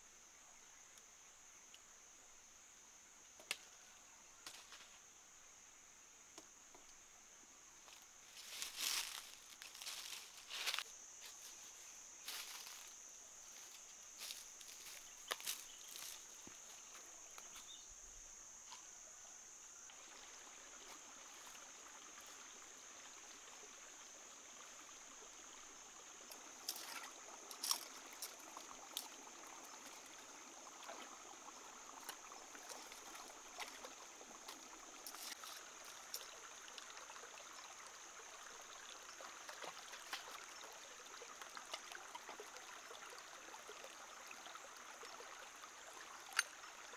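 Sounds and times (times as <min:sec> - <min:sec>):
stream trickling over rocks: 0:00.0 - 0:46.9
high-pitched insect drone: 0:08.3 - 0:18.6.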